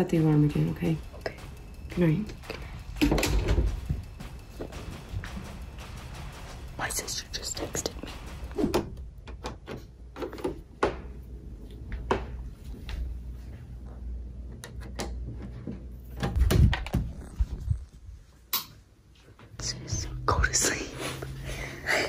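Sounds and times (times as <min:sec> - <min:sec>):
loud thump: 0:02.3 - 0:09.2.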